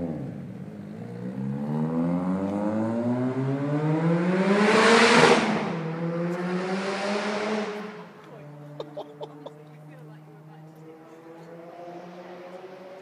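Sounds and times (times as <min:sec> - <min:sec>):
car engine accelerating past: 0:00.0 - 0:08.8, 0:09.8 - 0:13.0.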